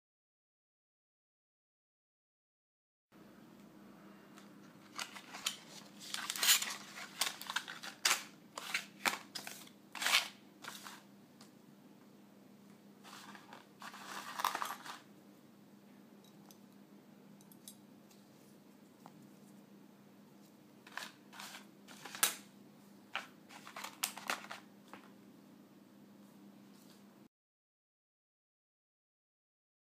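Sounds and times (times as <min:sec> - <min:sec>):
faint steady hum: 0:03.2 - 0:27.3
plastic packaging crinkling: 0:04.8 - 0:11.0, 0:13.1 - 0:15.1, 0:23.2 - 0:24.7.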